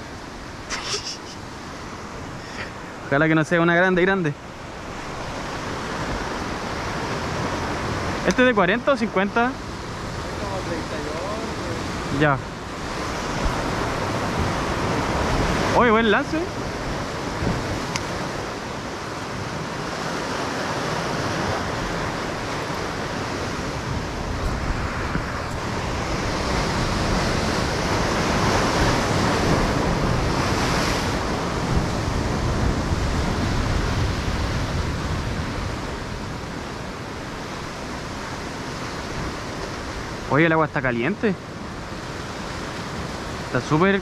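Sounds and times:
surf washing against rocks: 0.0 - 44.0
wind on microphone: 9.6 - 40.3.

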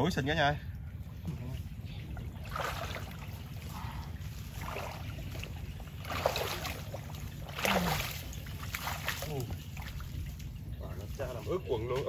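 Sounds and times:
fish splashing in water: 2.2 - 10.7.

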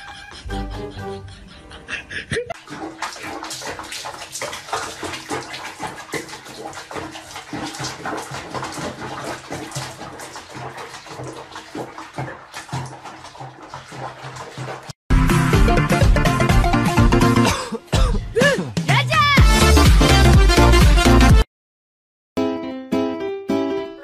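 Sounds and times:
water splashing in a basin: 2.5 - 15.0.

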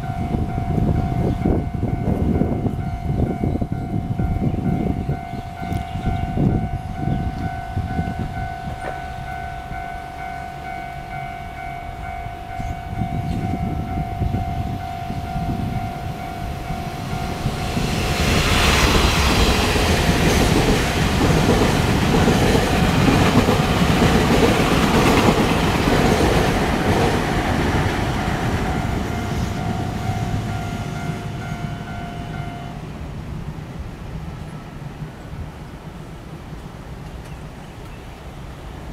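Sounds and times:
level crossing bell ringing: 0.0 - 17.9, 28.0 - 32.8
train rumbling on rails: 0.0 - 38.9.

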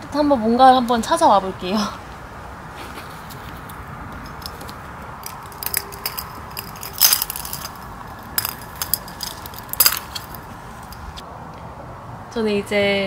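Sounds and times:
small hard objects clicking and clinking: 4.2 - 11.1.

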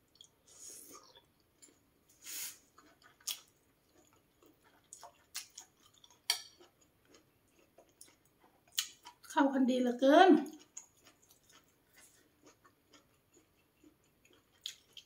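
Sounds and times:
person chewing: 0.1 - 9.3, 10.4 - 15.0.

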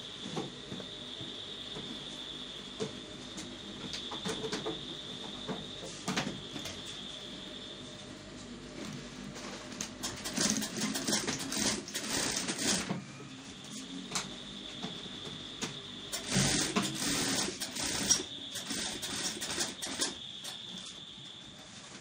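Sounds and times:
thin high whine: 0.0 - 22.0
sewing machine stitching: 10.0 - 13.0, 16.1 - 20.2.

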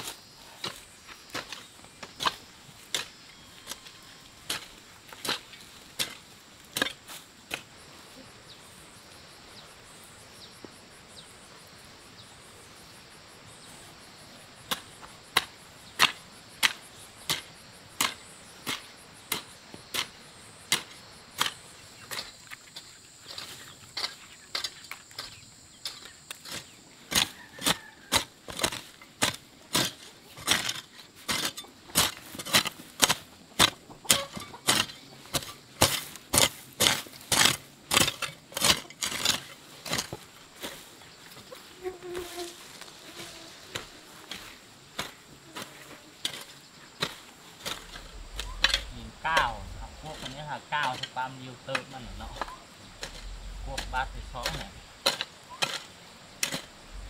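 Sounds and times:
garden hoe chopping soil: 0.0 - 7.8, 14.6 - 57.0.

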